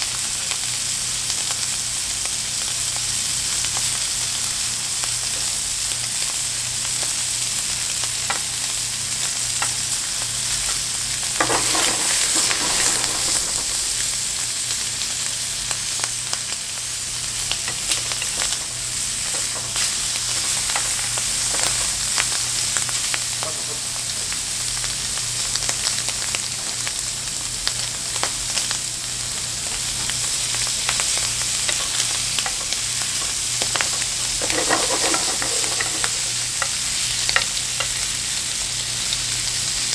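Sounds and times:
food sizzling in a frying pan: 0:00.0 - 0:39.9
utensil clicking in a pan: 0:30.8 - 0:38.0.

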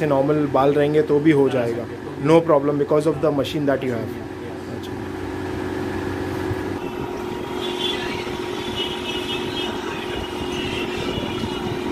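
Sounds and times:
electric suction machine humming: 0:04.7 - 0:11.9.

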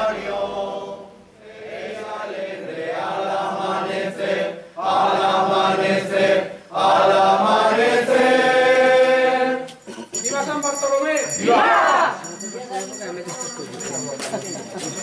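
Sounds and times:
group singing in unison: 0:00.0 - 0:09.9.

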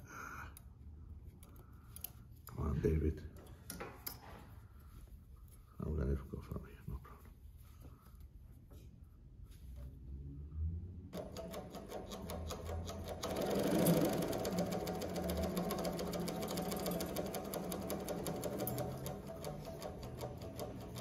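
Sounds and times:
sewing machine needles clattering: 0:11.2 - 0:21.0.

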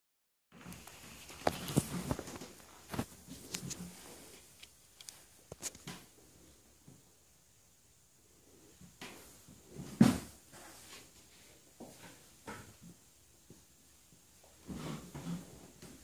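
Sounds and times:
faint knocks and rustles: 0:08.7 - 0:13.7.

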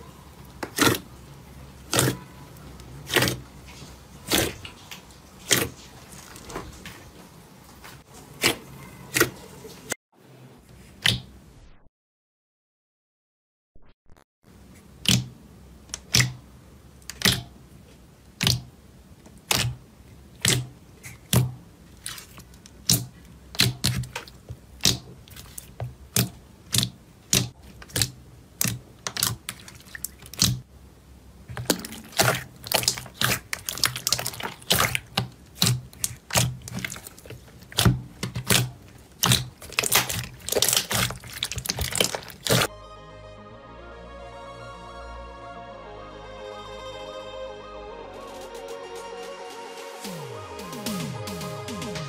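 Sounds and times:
slime squeezed wet clicks and pops: 0:17.1 - 0:17.5, 0:30.2 - 0:30.6, 0:31.6 - 0:42.7.

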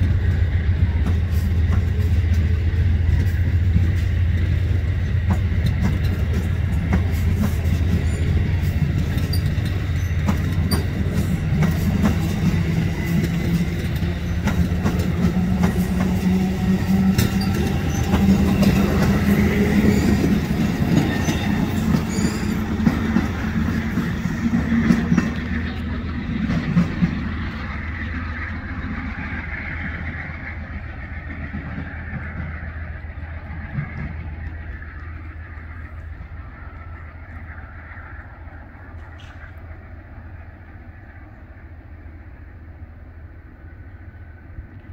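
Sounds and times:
wheels clicking over rail joints: 0:00.0 - 0:28.1
train wheels rumbling on rail: 0:00.0 - 0:44.9.

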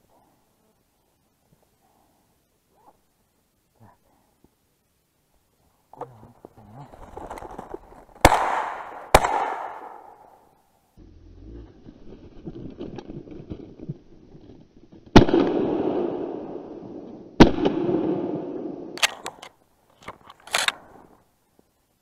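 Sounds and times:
crunching in snow: 0:06.3 - 0:08.9
shotgun shots with echo: 0:08.2 - 0:10.3
sharp clicks: 0:19.0 - 0:20.8.

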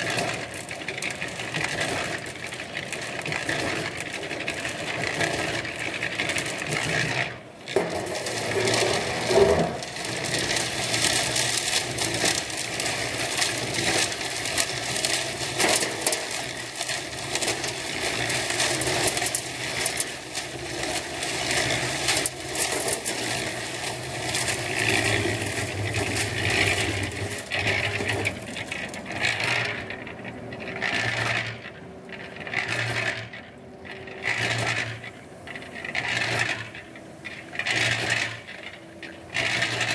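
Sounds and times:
cement mixer churning concrete: 0:00.0 - 0:39.9.

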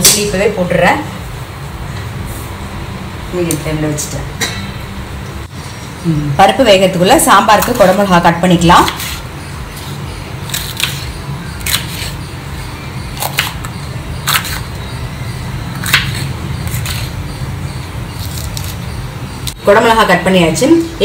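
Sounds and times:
knife slicing pepper: 0:08.8 - 0:12.2, 0:15.8 - 0:17.2, 0:18.2 - 0:18.8.

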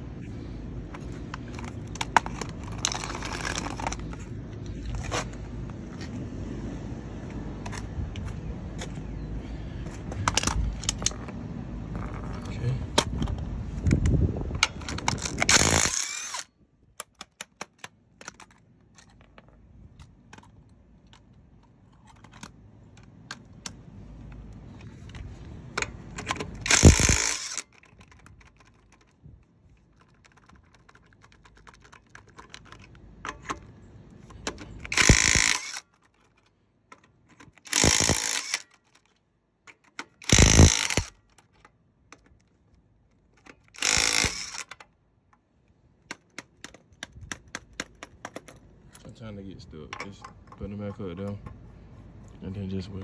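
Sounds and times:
power tool bursts: 0:15.5 - 0:16.4, 0:26.6 - 0:27.6, 0:34.9 - 0:35.8, 0:37.7 - 0:38.7, 0:40.2 - 0:41.1, 0:43.8 - 0:44.7
tools clicking on metal: 0:34.3 - 0:42.5, 0:43.4 - 0:44.9.

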